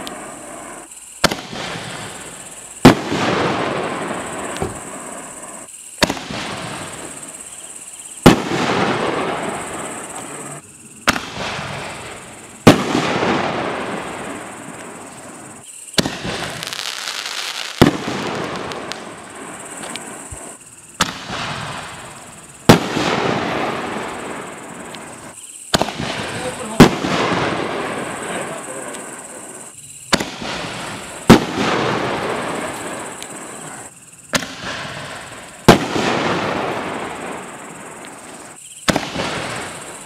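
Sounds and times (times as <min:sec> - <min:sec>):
firework shell bursting: 0:00.0 - 0:07.5
firework launch thump: 0:04.4 - 0:04.9.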